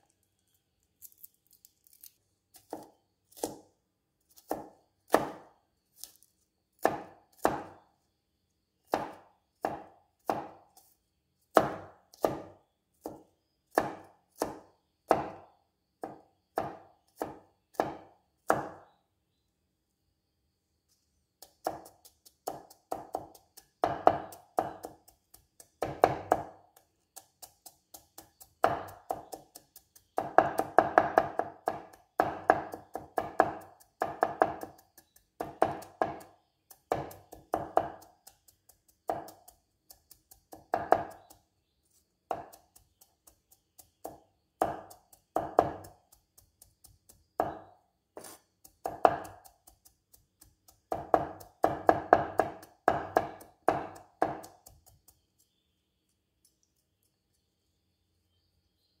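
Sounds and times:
cleaver chopping on wooden board: 2.6s - 3.7s, 4.4s - 5.5s, 6.8s - 7.8s, 8.9s - 10.6s, 11.5s - 15.4s, 16.0s - 18.8s, 21.4s - 41.4s, 42.3s - 55.0s.

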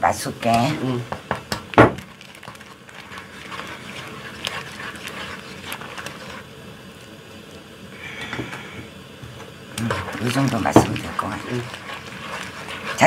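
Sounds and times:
broth hissing in a pan: 0.0s - 13.0s.

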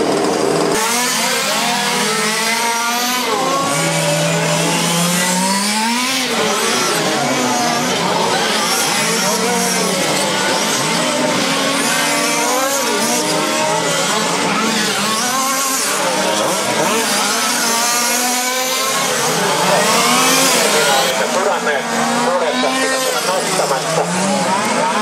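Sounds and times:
rc car engines whining: 0.0s - 25.0s.

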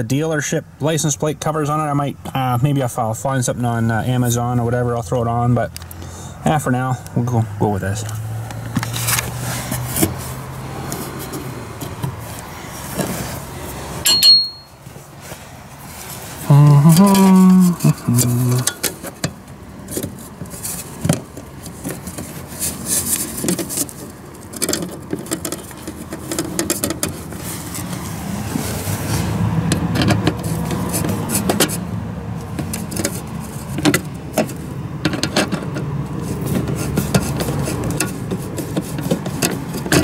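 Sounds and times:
metal scraping and clicking: 18.1s - 31.8s, 32.4s - 40.0s.

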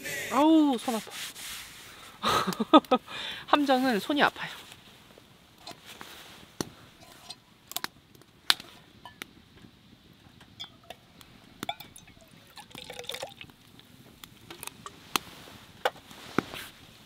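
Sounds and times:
beer pouring into a mug: 11.7s - 13.9s.

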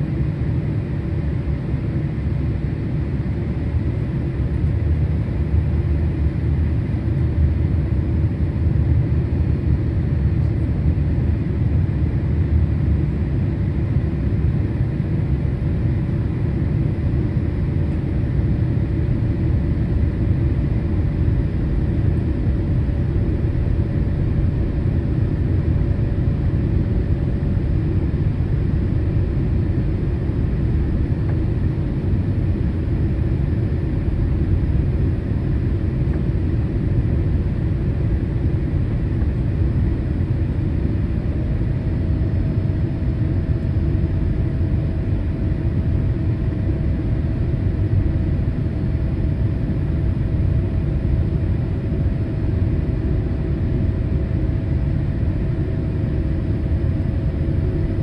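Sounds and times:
airliner cabin rumble: 0.0s - 48.1s.

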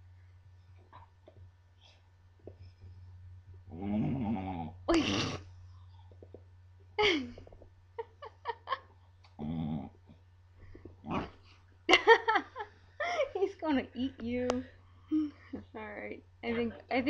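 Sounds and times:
dog growling and grumbling: 3.7s - 4.9s, 9.4s - 10.2s, 10.9s - 11.4s.

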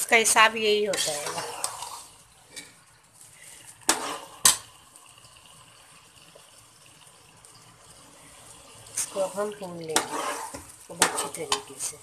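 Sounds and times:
faint sizzle of frying: 0.0s - 12.0s
metal spoon scraping cooking pot: 0.9s - 2.8s, 3.9s - 4.6s, 9.0s - 11.7s.

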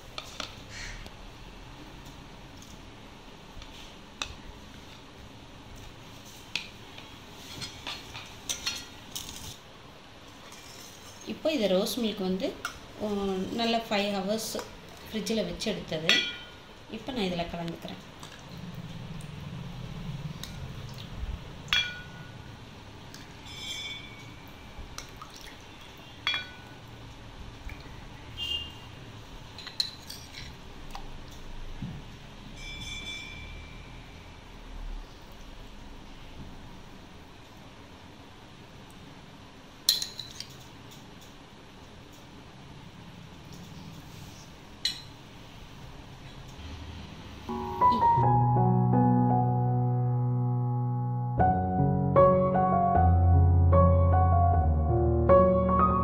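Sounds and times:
spoon clinking on kitchenware: 16.1s - 16.6s, 26.2s - 26.8s, 39.9s - 40.6s
steel ladle clinking: 16.1s - 16.6s, 21.7s - 22.4s, 23.4s - 24.5s, 26.2s - 26.8s.

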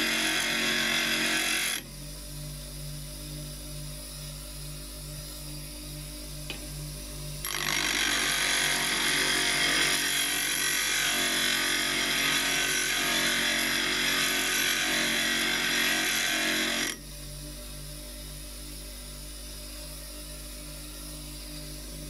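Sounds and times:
chisel grinding on bench grinder: 0.0s - 1.8s, 7.4s - 17.0s.

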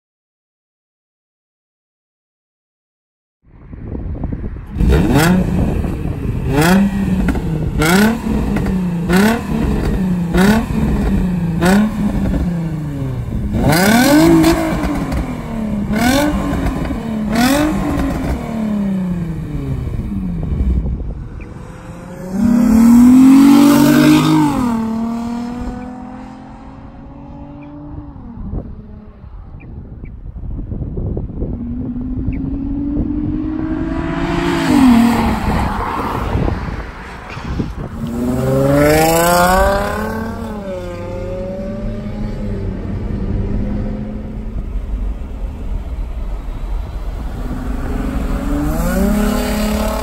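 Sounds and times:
car engine revving: 4.7s - 29.3s, 31.3s - 36.7s, 37.4s - 50.0s
car pulling away: 37.3s - 50.0s.

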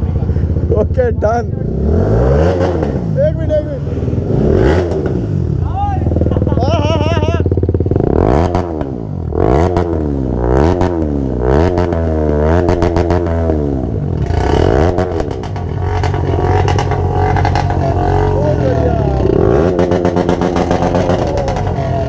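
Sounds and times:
motorcycle idling: 0.0s - 1.7s, 3.2s - 9.4s, 12.7s - 22.0s
motorcycle engine revving: 0.0s - 22.0s.

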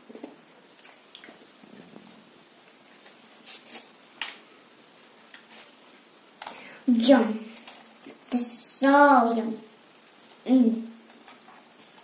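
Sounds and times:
soft clicks and rustles: 7.4s - 8.3s.

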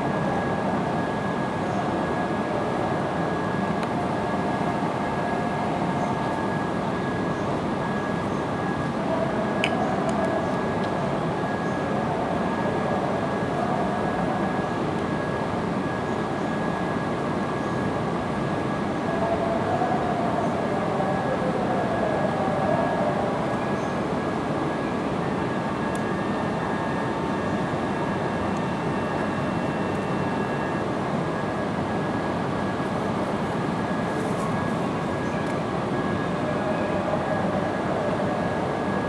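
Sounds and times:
thin high whine: 23.6s - 39.0s.

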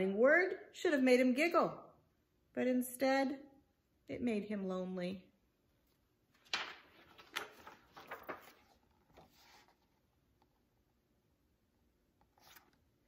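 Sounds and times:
book pages rustling: 6.4s - 10.5s, 12.2s - 13.0s.

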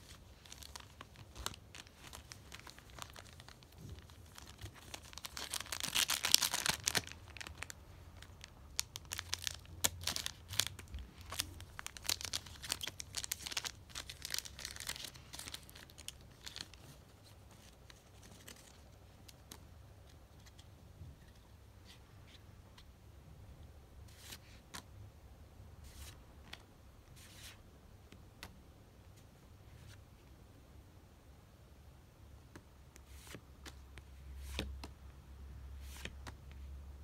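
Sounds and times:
cards and wrappers rustling: 0.0s - 19.6s
foil wrappers tearing and crinkling: 0.4s - 7.7s, 8.8s - 16.7s.

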